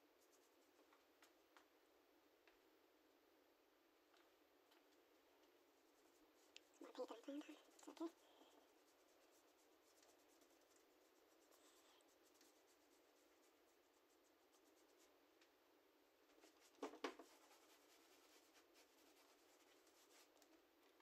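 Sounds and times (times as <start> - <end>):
paintbrush scratching on canvas: 0.2 - 0.8, 5.7 - 15.2, 16.3 - 20.5.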